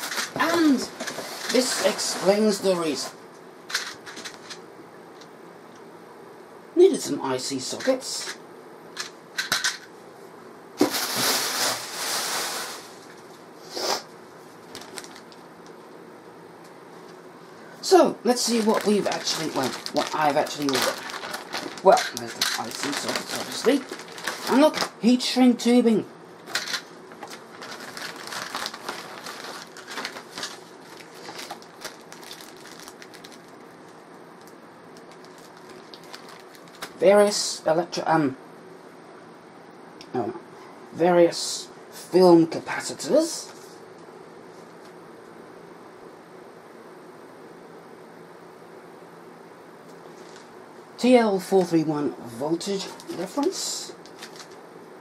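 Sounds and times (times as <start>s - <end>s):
packaging rustling: 0.0s - 2.6s, 3.7s - 4.6s, 14.6s - 15.5s, 18.4s - 25.0s, 26.5s - 37.0s, 52.8s - 54.6s
plastic bags crinkling: 14.6s - 15.5s, 18.3s - 25.0s, 26.5s - 37.0s, 52.8s - 54.6s.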